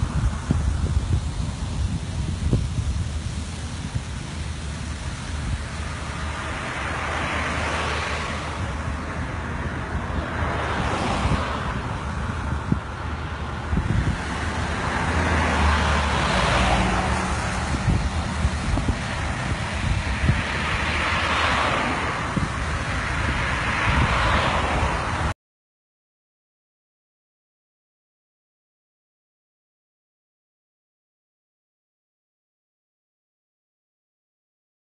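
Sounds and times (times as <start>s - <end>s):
vehicles passing: 0.0s - 25.4s
wind rumble on microphone: 0.0s - 25.4s.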